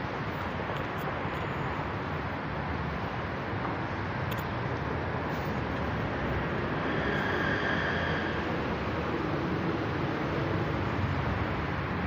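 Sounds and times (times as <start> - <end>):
street traffic hum: 0.0 - 12.0
faint high whine: 5.4 - 11.1.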